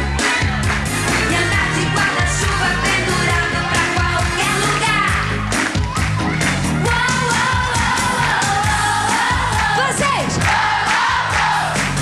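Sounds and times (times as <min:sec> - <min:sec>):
dance beat: 0:00.0 - 0:12.0
woman singing: 0:01.1 - 0:05.3, 0:06.8 - 0:10.4.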